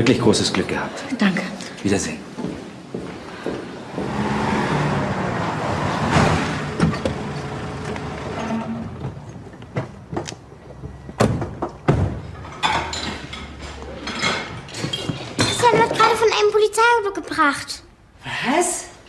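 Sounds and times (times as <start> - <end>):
car engine and tyres: 3.1 - 12.5.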